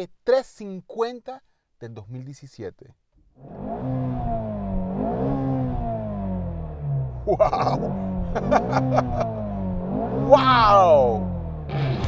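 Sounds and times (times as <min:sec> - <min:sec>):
car engine starting and revving: 0:03.3 - 0:12.0.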